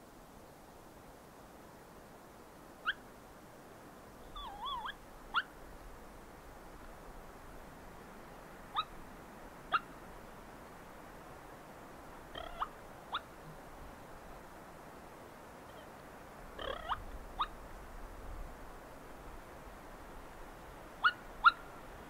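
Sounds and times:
wind hiss: 0.0 - 22.0
turkey rolling purr: 16.6 - 17.0.

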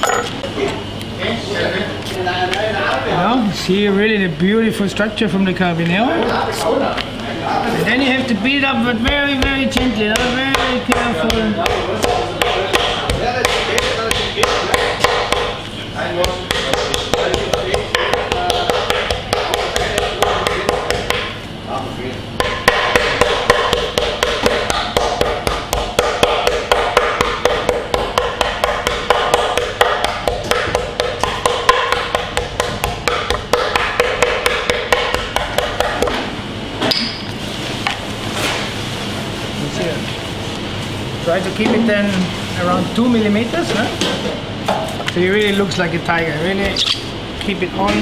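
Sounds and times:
meat pounder tapping on board: 9.0 - 15.6, 16.2 - 21.4, 22.4 - 36.2.

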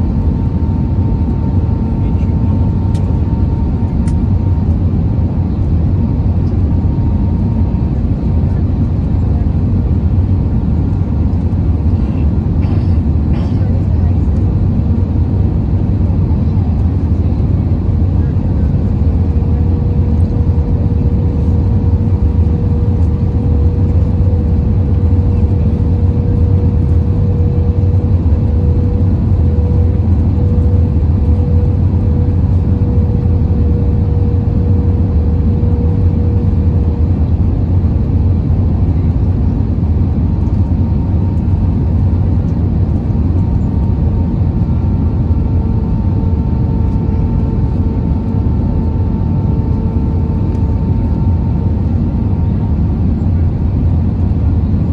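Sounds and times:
aircraft engines and airflow rumbling: 0.0 - 54.9
faint steady hum: 16.5 - 53.5
higher hum: 18.2 - 37.8.

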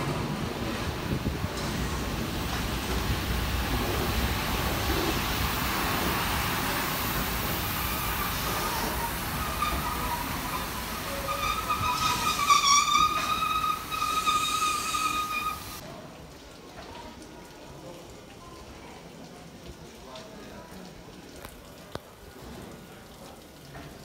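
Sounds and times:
steam locomotive hissing: 0.0 - 15.8.

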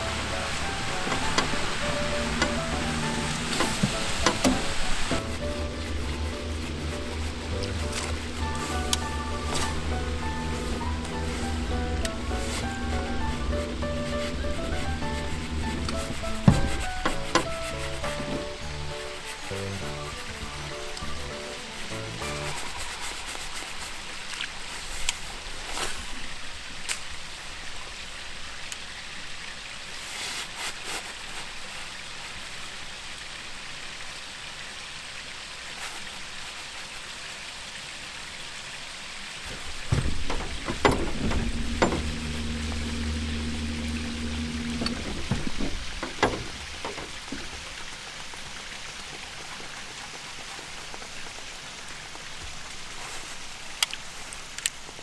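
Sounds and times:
low steady hum: 0.0 - 23.7, 39.4 - 48.3
outdoor noise hiss: 0.0 - 55.0.

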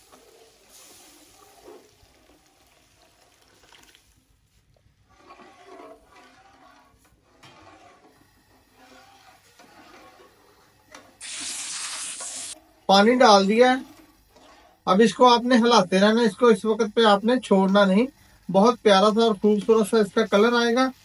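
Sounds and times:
food bubbling and hissing: 0.0 - 14.9
water poured into pot: 0.1 - 4.3, 11.2 - 12.6.

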